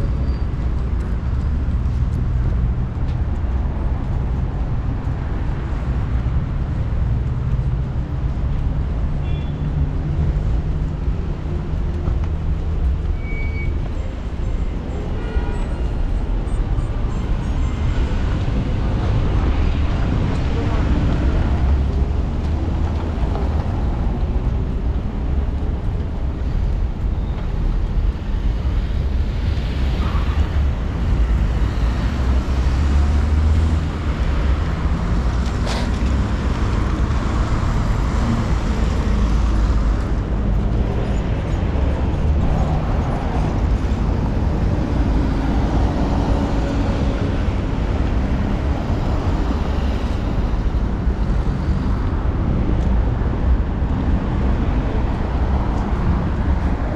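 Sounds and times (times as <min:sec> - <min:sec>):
low traffic rumble: 0:00.0 - 0:56.9
cars driving past: 0:17.3 - 0:56.9.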